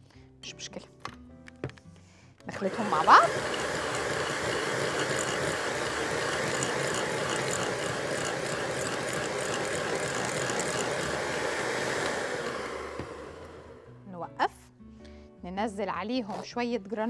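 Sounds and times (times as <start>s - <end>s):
electric mixer running: 2.5s - 14.0s.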